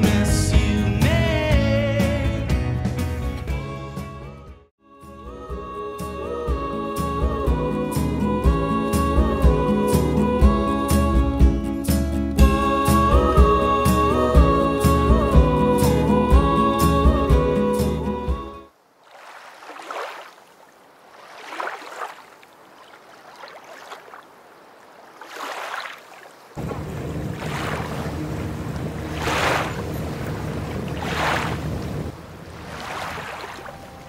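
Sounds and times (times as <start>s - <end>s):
small waves lapping: 18.7s - 34.0s.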